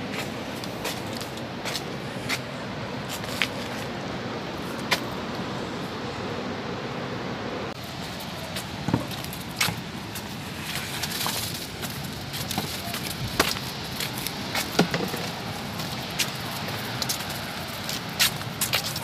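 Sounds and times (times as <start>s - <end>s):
waterfall roaring: 0.0s - 19.0s.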